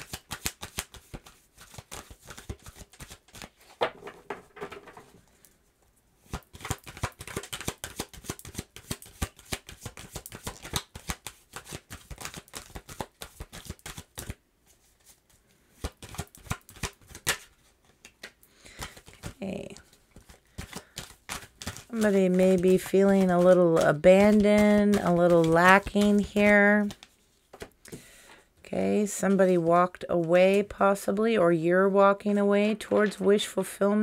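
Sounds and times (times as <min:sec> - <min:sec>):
cards being shuffled: 0:00.0 - 0:04.8, 0:06.3 - 0:27.8.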